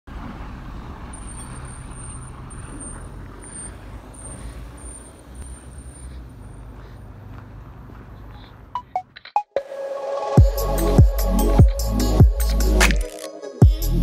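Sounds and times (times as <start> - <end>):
vehicle driving on packed snow: 0.1 - 8.8.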